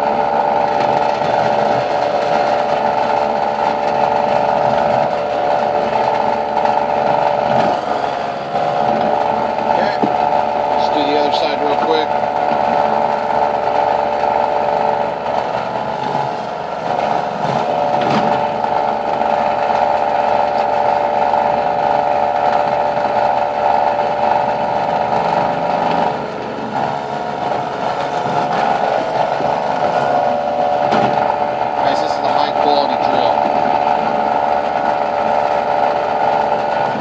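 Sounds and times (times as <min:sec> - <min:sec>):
drill press drilling into wood: 0:00.0 - 0:37.0.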